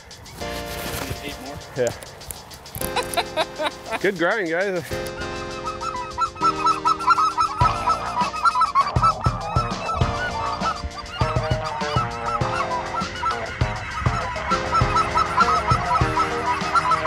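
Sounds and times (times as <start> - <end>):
geese cackling calls: 0.0 - 17.0.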